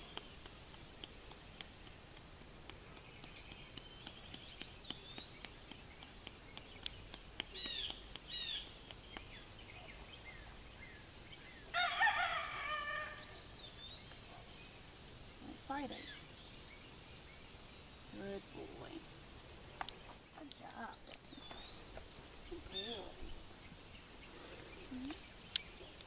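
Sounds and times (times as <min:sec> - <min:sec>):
bird calls: 0:02.9 - 0:14.8, 0:19.8 - 0:26.0
rooster crowing: 0:11.7 - 0:13.3.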